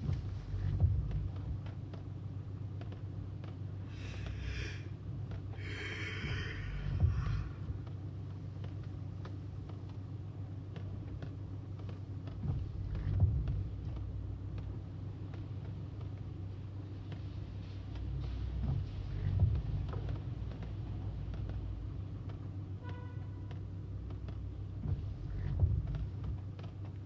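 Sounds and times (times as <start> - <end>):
low thumps: 0.0 - 1.7, 5.6 - 8.0
road and engine rumble: 0.0 - 27.0.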